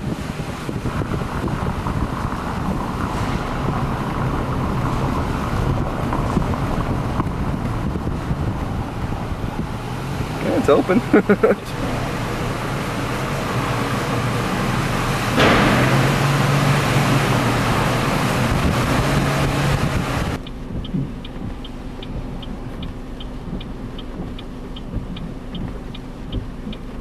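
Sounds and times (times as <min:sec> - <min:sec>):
car engine running: 0:00.0 - 0:27.0
road and cabin noise: 0:00.0 - 0:27.0
steady hum: 0:00.0 - 0:27.0
faint high ticking: 0:20.4 - 0:27.0.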